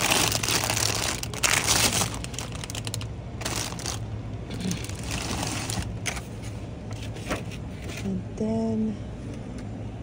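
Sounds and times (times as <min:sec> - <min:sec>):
rustling and handling noise: 0:00.0 - 0:08.3.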